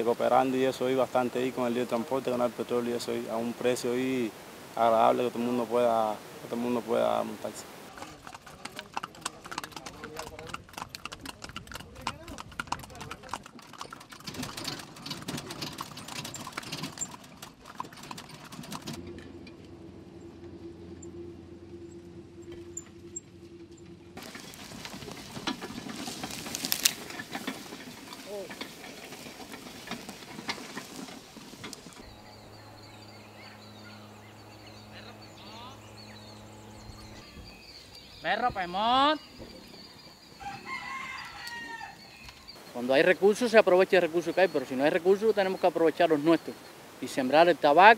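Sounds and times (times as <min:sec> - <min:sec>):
horse hooves clip-clopping: 0:00.0 - 0:21.2, 0:21.9 - 0:47.9
steady low hum: 0:19.0 - 0:25.8, 0:31.7 - 0:38.0
small birds chirping: 0:30.8 - 0:47.8.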